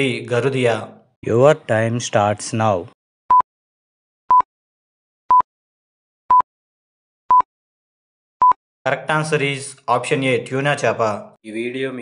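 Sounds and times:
short electronic beeps: 8.4s - 8.6s.

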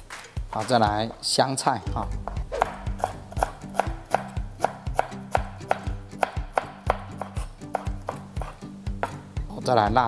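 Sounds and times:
knife chopping on wooden board: 2.2s - 9.3s.

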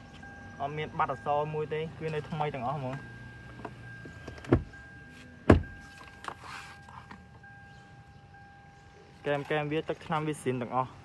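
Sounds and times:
faint steady high tone: 0.0s - 9.5s
car door knocks: 3.6s - 4.7s, 5.4s - 5.8s.

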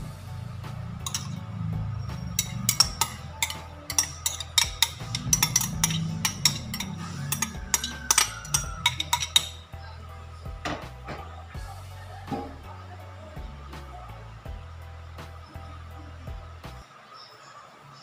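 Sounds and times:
background music: 0.0s - 17.1s
spoon clinking on glass bowl: 1.0s - 9.6s.

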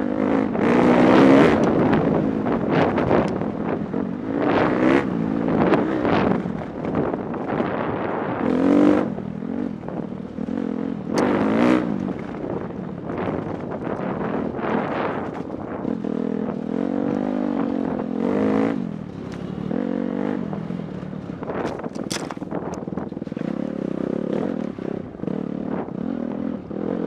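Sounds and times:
dirt bike engine revving: 0.0s - 12.4s, 14.2s - 22.6s
bike rattling over bumps: 12.0s - 25.5s.

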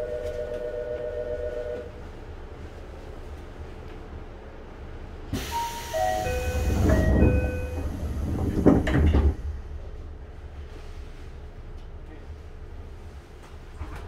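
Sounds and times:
train doors shutting: 5.2s - 10.0s, 13.3s - 14.0s
air hiss: 5.3s - 8.0s.

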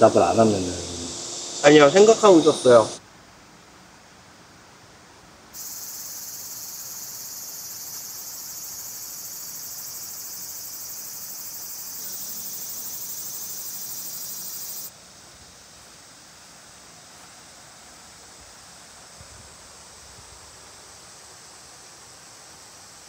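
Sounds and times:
insects chirring: 0.0s - 3.0s, 5.6s - 23.0s.

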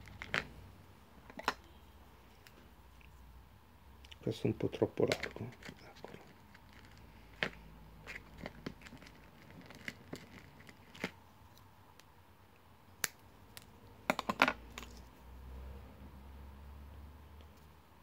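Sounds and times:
clicks and taps on glass counter: 14.1s - 14.9s.

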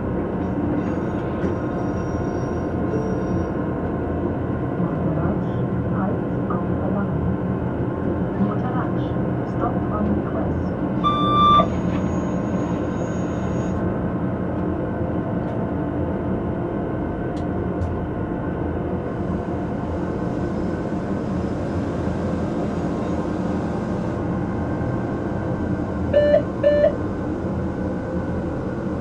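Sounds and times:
short high beep: 11.0s - 12.3s, 26.2s - 27.0s.

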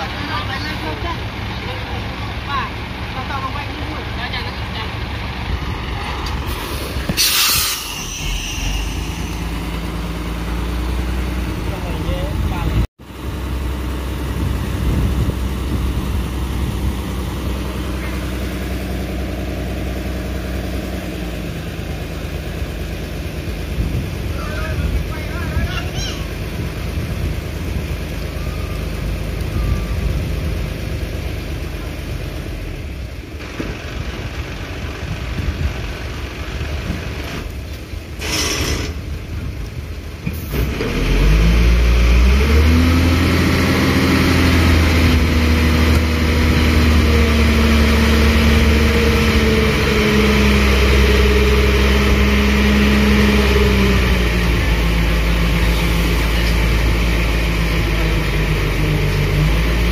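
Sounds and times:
diesel truck engine running: 0.0s - 59.9s
brake air hiss: 6.5s - 9.9s, 38.1s - 39.0s.

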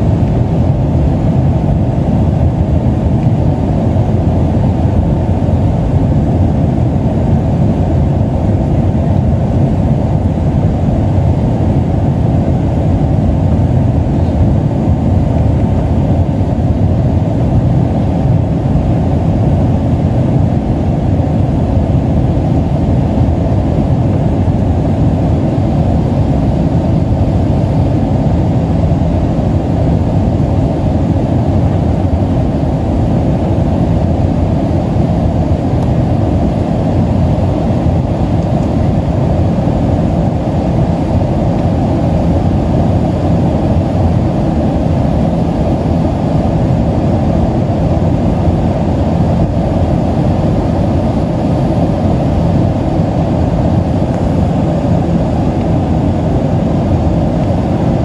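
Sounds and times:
jet engines rumbling: 0.0s - 58.0s
rushing air: 0.0s - 58.0s.

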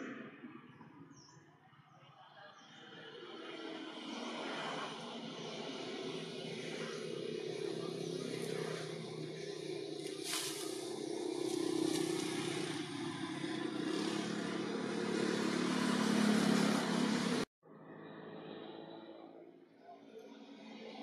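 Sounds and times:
motor vehicle engine running: 5.4s - 17.5s.

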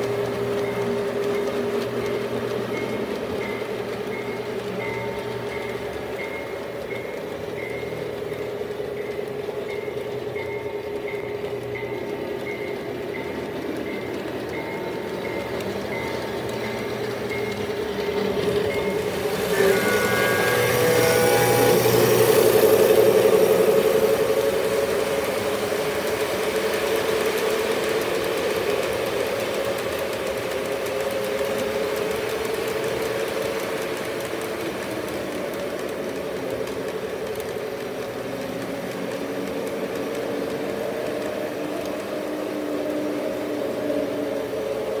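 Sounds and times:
model trains whirring on track: 0.0s - 45.0s
short high tones: 18.7s - 22.2s.

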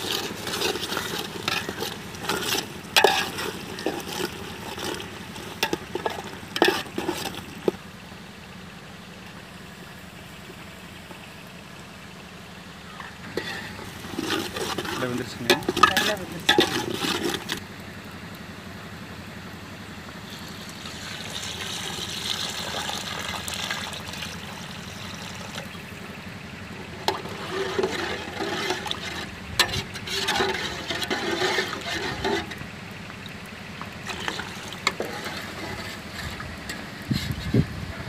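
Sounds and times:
ladle stirring and scraping: 0.0s - 7.9s, 13.0s - 17.6s, 26.8s - 37.7s
water pouring into a pot: 20.3s - 25.7s, 33.2s - 36.3s.

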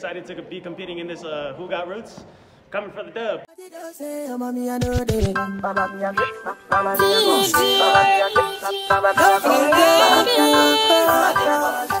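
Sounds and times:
music with held notes: 5.2s - 12.0s.

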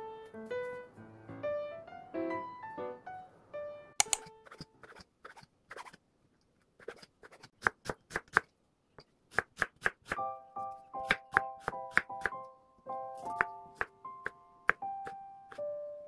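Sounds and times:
light piano music: 0.0s - 4.5s, 10.2s - 16.0s.

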